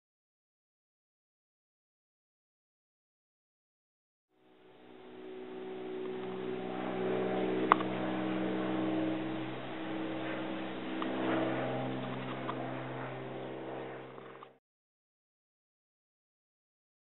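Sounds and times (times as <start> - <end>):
engine hum: 4.4 - 14.6.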